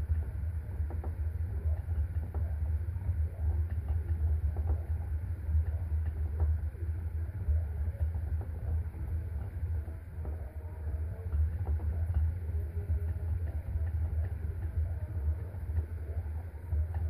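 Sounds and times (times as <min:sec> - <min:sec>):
hamster running in exercise wheel: 0:00.0 - 0:17.0.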